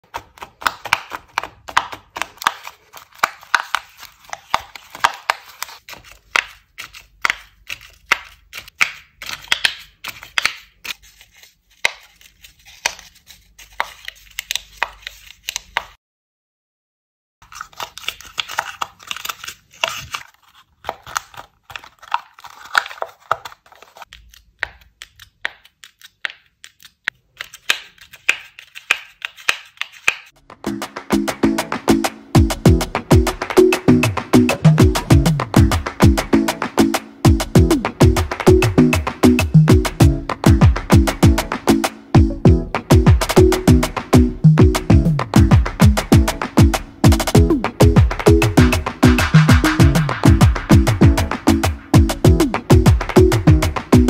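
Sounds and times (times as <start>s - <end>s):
crisp paper clicks and crinkles: 0.0s - 16.0s, 17.4s - 30.4s.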